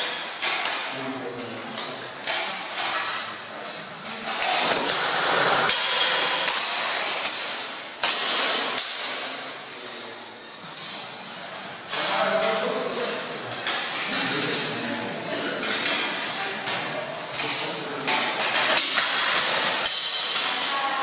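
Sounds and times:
swords clashing on metal: 4.3 - 9.4, 18.1 - 20.9.

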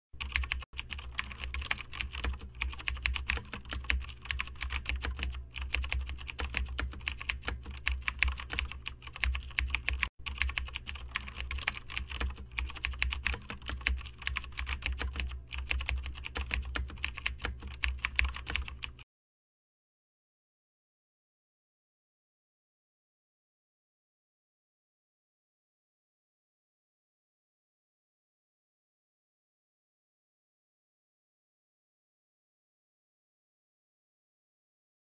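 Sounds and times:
keyboard typing: 0.2 - 19.0
low steady hum: 0.2 - 19.0.

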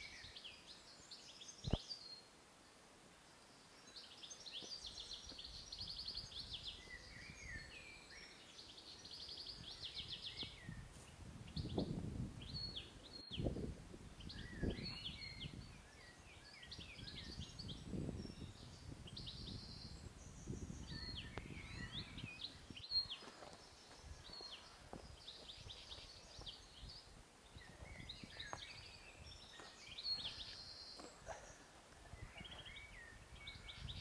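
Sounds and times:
birds chirping and whistling: 14.2 - 27.0, 27.6 - 34.0.

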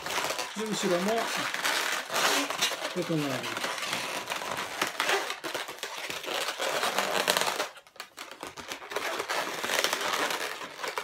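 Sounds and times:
balloons rubbing and crinkling: 0.0 - 11.0.

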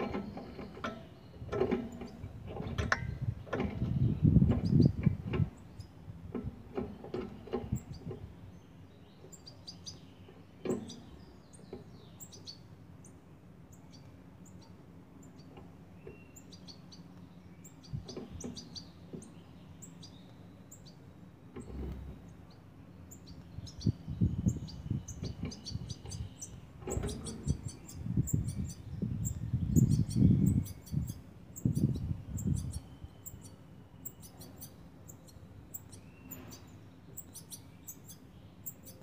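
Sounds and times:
knocks and rattling: 0.0 - 5.6
birds chirping: 0.0 - 39.0.

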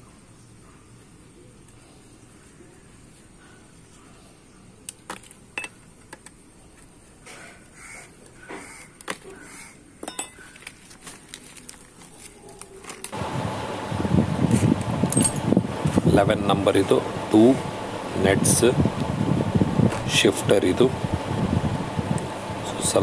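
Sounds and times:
loud steady rushing noise: 13.2 - 23.0
metallic clinks of wrench and nuts: 15.1 - 15.5.

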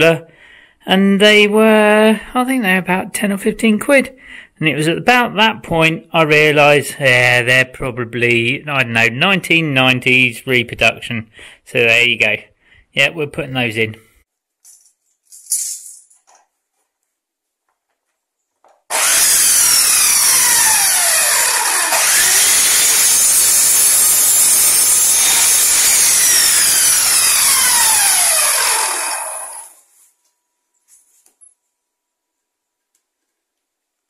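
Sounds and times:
mitre saw cutting timber: 18.9 - 29.9.

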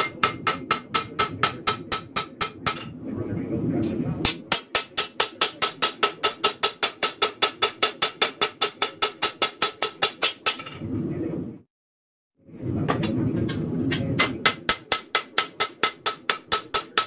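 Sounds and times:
hammer on knife blade on anvil: 0.0 - 2.9, 4.2 - 10.8.

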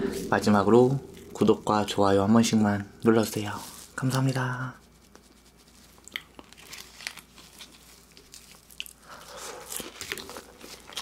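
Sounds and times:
fried chicken crunching: 5.8 - 11.0.

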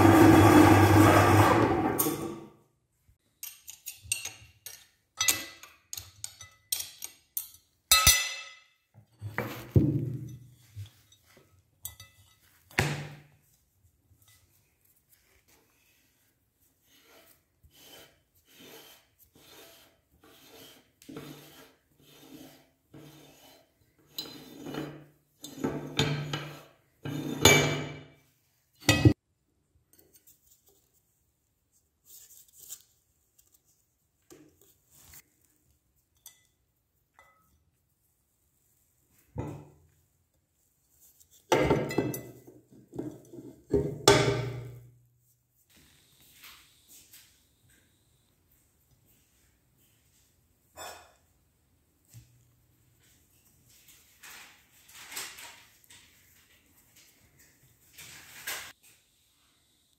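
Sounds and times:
meat grinder rasping scrapes: 0.0 - 2.0, 16.8 - 25.6.

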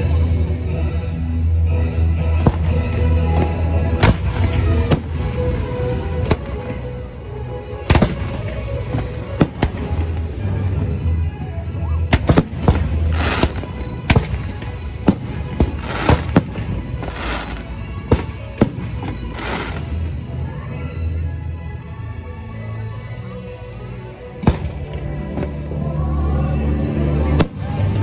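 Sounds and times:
show music: 0.0 - 28.0
fireworks bursting: 2.4 - 7.0, 7.8 - 11.0, 12.1 - 20.2.

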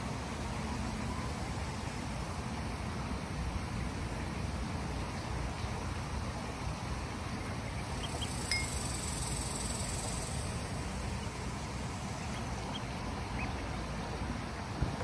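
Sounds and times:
ducklings peeping: 4.4 - 14.8.

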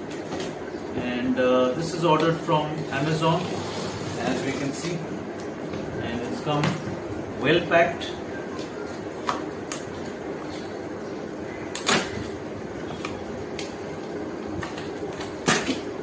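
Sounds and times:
steady background noise: 0.0 - 16.0
blade cutting packing tape: 11.7 - 12.3, 14.6 - 15.9.

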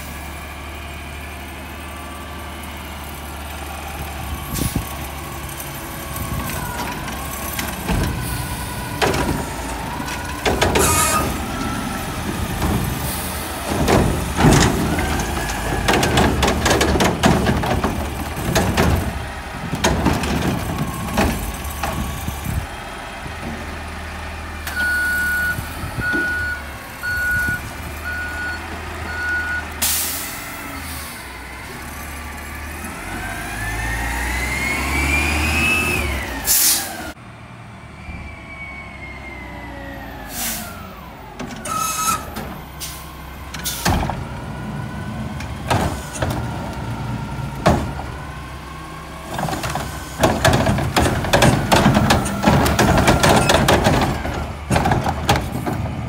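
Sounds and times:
truck engine revving: 0.0 - 56.0
cart rattling clatter: 6.2 - 22.7, 49.2 - 56.0
reversing beeper: 24.7 - 29.8, 37.9 - 40.8
air brake hiss: 29.8 - 31.2, 40.3 - 40.8.

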